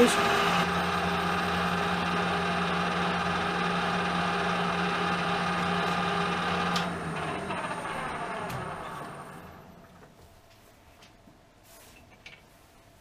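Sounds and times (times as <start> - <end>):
lathe motor and gear hum: 0.0 - 10.0.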